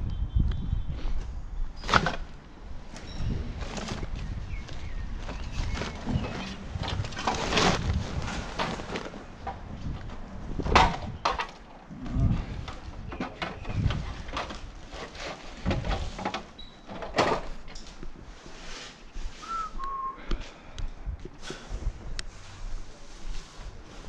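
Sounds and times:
knocks and rattles: 5.3s - 17.9s.

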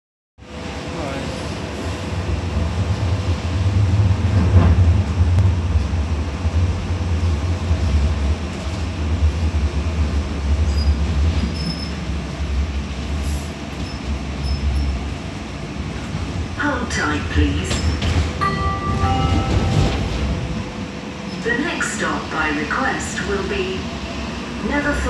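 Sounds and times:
tram rumbling: 0.4s - 25.0s.

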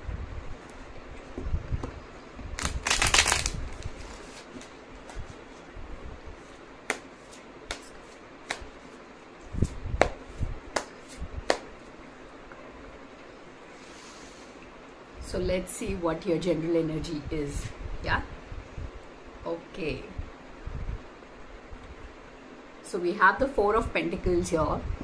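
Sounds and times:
sharp card clicks: 2.6s - 3.6s
cards riffle shuffling: 2.6s - 5.4s.

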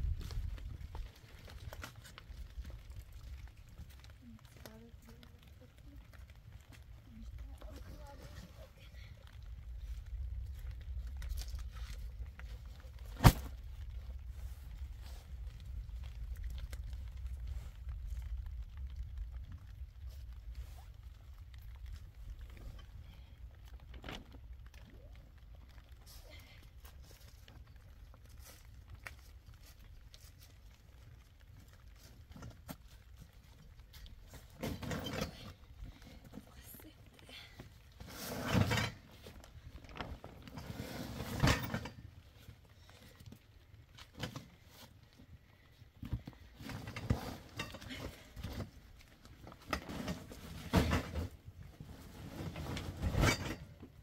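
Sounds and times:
low steady rumble: 0.0s - 54.0s
sack set on ground: 11.0s - 17.0s.

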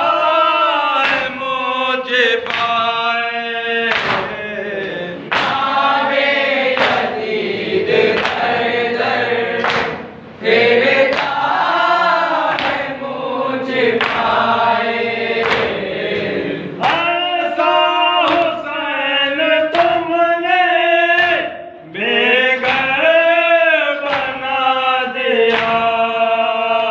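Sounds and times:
men and boys chanting in unison: 0.0s - 26.9s
hands slapping chests: 2.4s - 2.8s, 3.9s - 7.4s, 8.1s - 8.5s, 9.6s - 10.1s, 10.9s - 11.6s, 12.4s - 12.9s, 13.7s - 14.4s, 15.4s - 17.0s, 24.1s - 24.4s.

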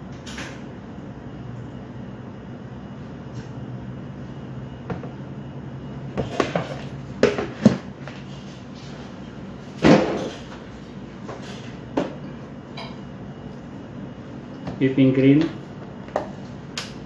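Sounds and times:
steady low hum: 0.0s - 17.0s
objects knocking and clunking: 6.1s - 8.3s.

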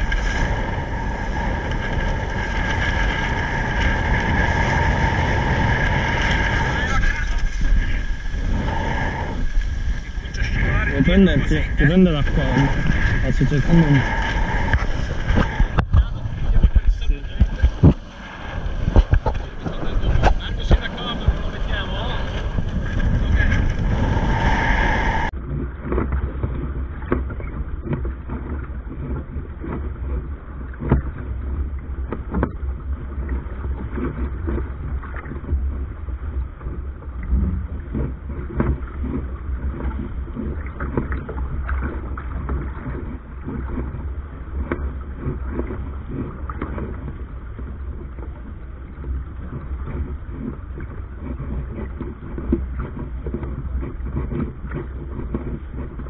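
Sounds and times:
rumble of wind and water: 0.0s - 56.0s
wind buffeting microphone: 0.0s - 56.0s
boat knocks and taps: 14.7s - 18.1s, 25.4s - 56.0s.

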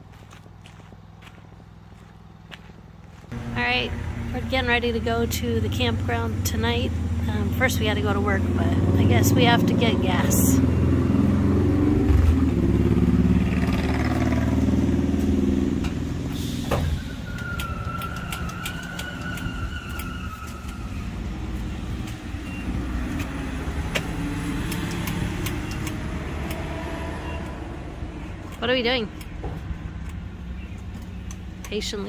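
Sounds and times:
truck engine idling: 0.0s - 9.6s
fuel pump whine: 3.3s - 32.0s.

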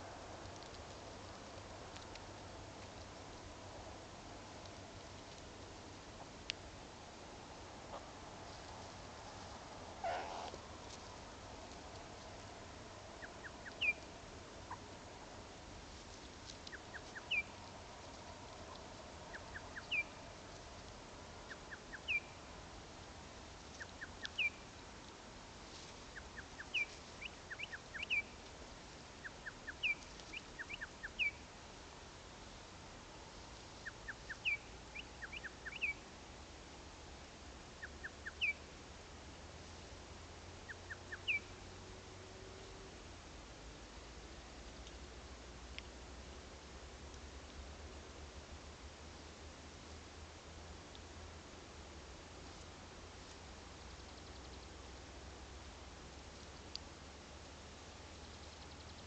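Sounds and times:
faint steady hiss: 0.0s - 59.0s
animal clicks and falling chirp: 13.2s - 14.1s, 23.8s - 24.6s, 29.2s - 31.3s.

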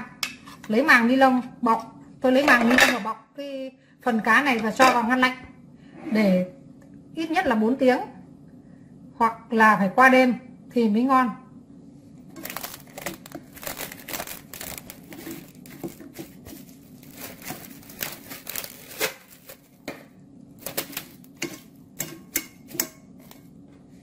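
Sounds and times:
cling film crinkling: 12.3s - 19.8s.

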